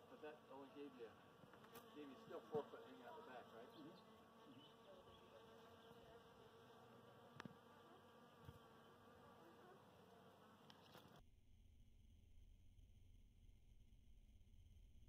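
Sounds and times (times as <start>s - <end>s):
bees buzzing: 0.0s - 11.2s.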